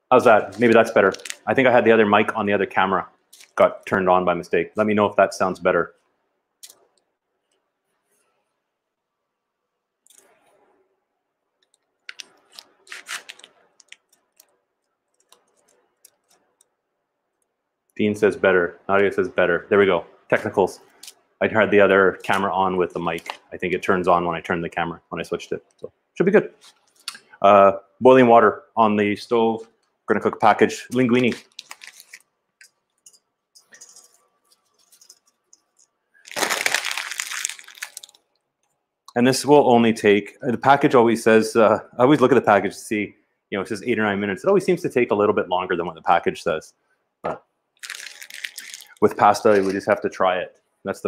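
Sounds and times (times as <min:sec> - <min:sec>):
package wrapping crinkling: 0:00.4 - 0:01.5, 0:12.0 - 0:14.5, 0:30.9 - 0:38.3, 0:47.8 - 0:49.9
handling clicks and rustles: 0:30.9 - 0:36.8.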